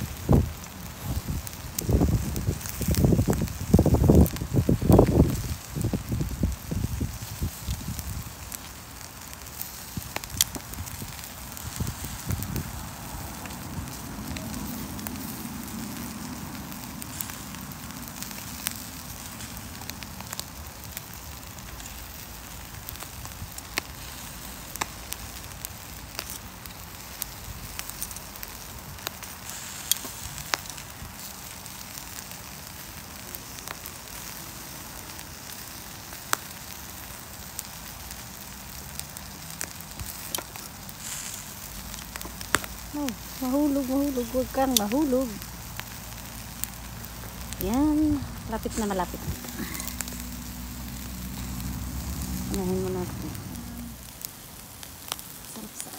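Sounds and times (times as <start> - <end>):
grill crackling and sizzling: 0.0 - 55.9.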